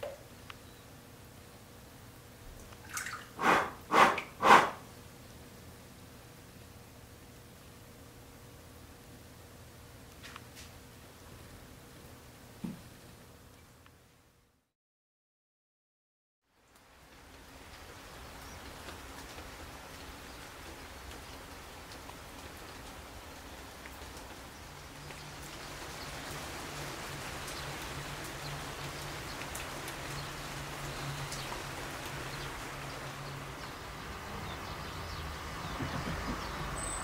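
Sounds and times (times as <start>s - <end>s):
steady rain: 3.4s - 14.3s, 16.4s - 37.0s
rain drop ticks: 16.7s - 34.2s.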